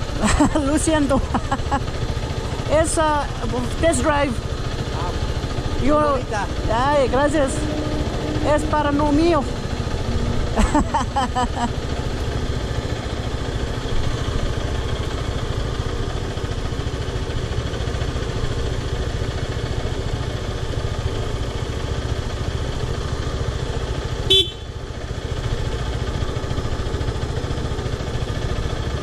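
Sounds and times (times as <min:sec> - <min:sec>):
motorcycle engine idling: 0:00.0 - 0:29.0
horn toot: 0:07.3 - 0:10.4, 0:24.3 - 0:24.7.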